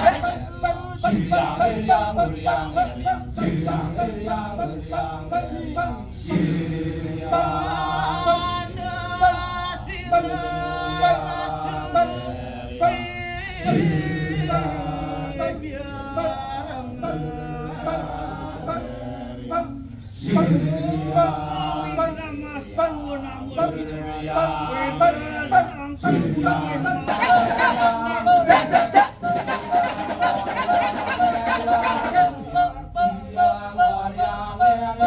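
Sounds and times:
men chanting a cappella: 0.0s - 35.0s.

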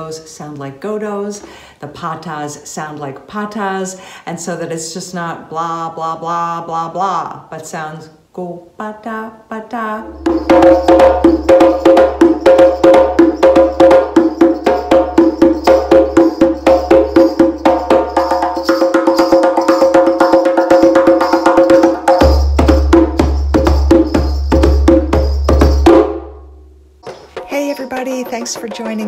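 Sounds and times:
hand drum strokes: 10.0s - 26.1s.

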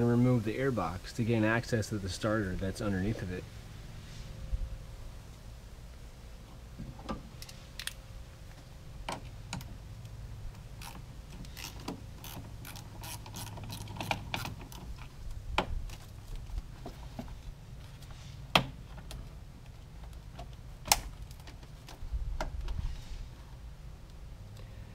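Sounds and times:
ratchet clicking: 10.8s - 14.8s.

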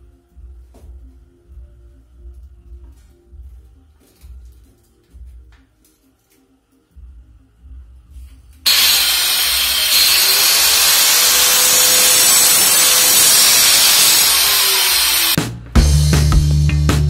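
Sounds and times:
angle grinder cutting brick wall: 8.7s - 15.4s.

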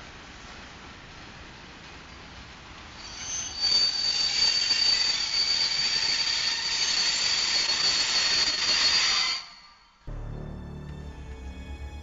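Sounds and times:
freight train wagons rolling: 0.2s - 9.9s
high-pitched wheel squeal: 3.0s - 10.0s.

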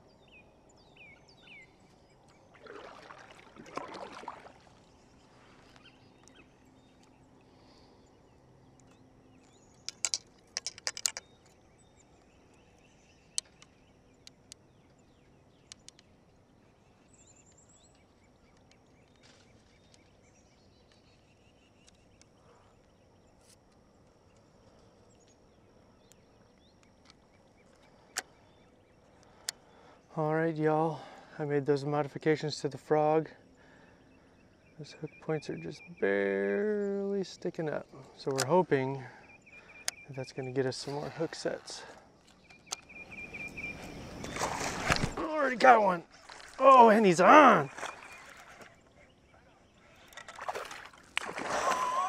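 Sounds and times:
birds chirping: 0.0s - 52.0s
paddle swishing in water: 2.4s - 5.8s, 43.2s - 49.1s, 49.8s - 52.0s.

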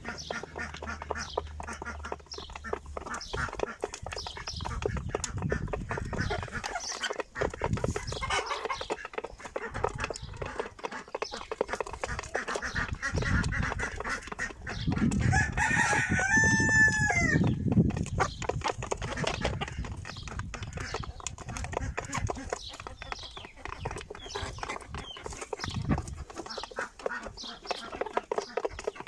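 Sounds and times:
chickens clucking: 0.0s - 29.0s
pecking ticks: 0.0s - 29.0s
rooster crowing: 15.3s - 17.4s.

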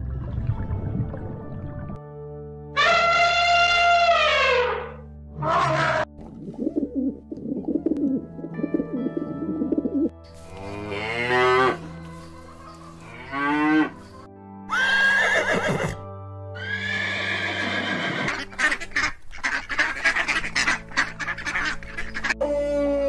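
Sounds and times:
light background music: 0.0s - 23.0s
cows mooing: 10.4s - 11.9s, 13.0s - 14.0s
horse neighing: 14.7s - 16.0s, 16.6s - 18.5s.

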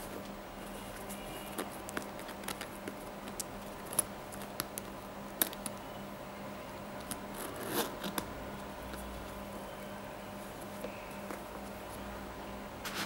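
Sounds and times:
faint steady hum: 0.0s - 13.0s
zipper teeth rasping: 7.4s - 8.1s.

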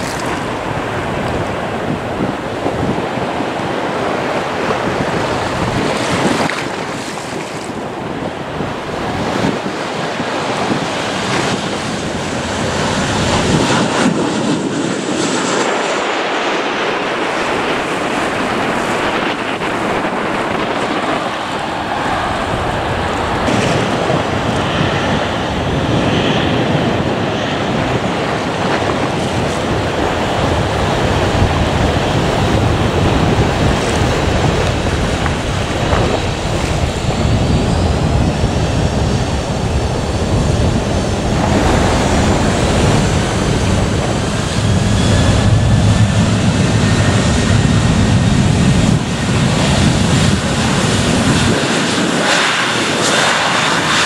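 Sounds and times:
high turbine whines: 0.0s - 54.0s
jet engines roaring: 0.0s - 54.0s
wind buffeting microphone: 0.0s - 54.0s.

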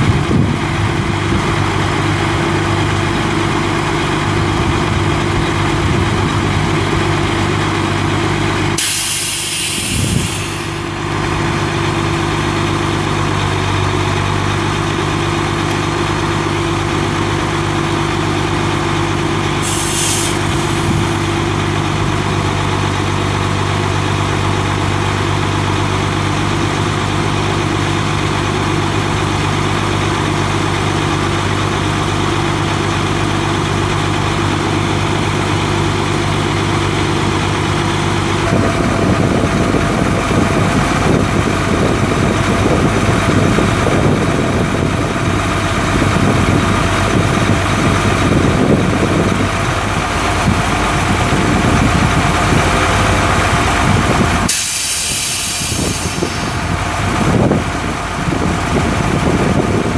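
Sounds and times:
diesel truck engine idling: 0.0s - 59.9s
brief hiss: 8.8s - 10.8s, 19.7s - 20.6s, 54.5s - 56.3s.

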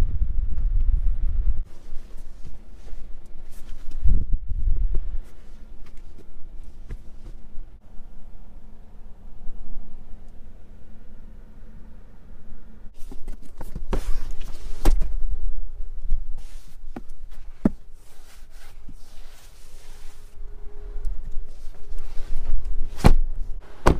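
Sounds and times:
rustling: 1.6s - 4.1s, 16.0s - 20.4s, 21.0s - 23.9s.

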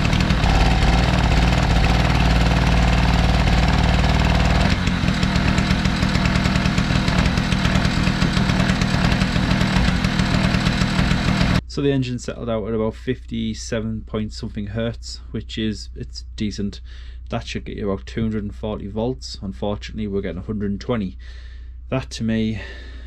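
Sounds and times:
generator engine running: 0.0s - 11.6s.

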